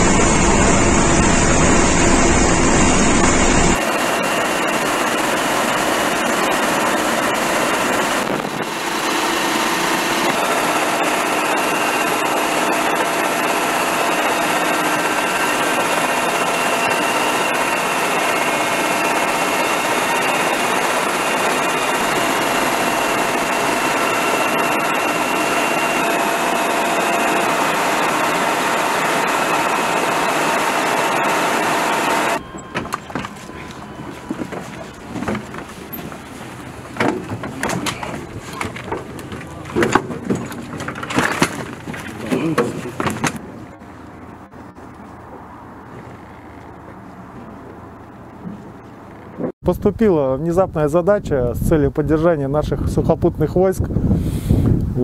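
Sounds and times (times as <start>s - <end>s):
helicopter turbine and rotor: 0.0s - 41.8s.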